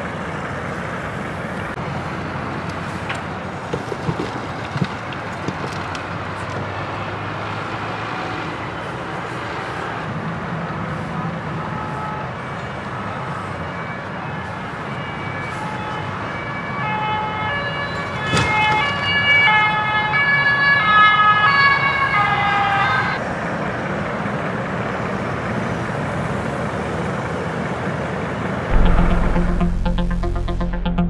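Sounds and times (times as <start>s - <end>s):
motorway traffic noise: 0.0s - 16.6s, 23.1s - 28.7s
two-tone emergency siren: 11.5s - 23.2s, 28.7s - 31.0s.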